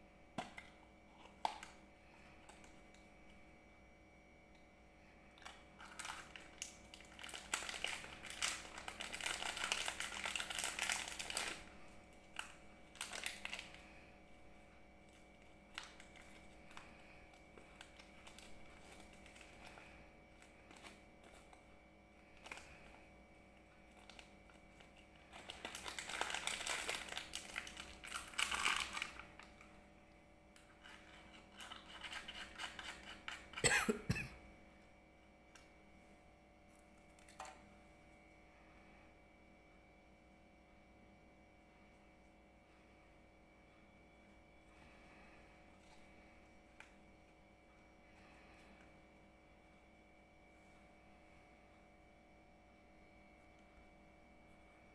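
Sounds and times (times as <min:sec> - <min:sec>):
plastic wrapper crinkling: 0:05.4 - 0:14.0, 0:15.0 - 0:21.6, 0:22.2 - 0:23.0, 0:23.6 - 0:29.8, 0:30.6 - 0:33.6.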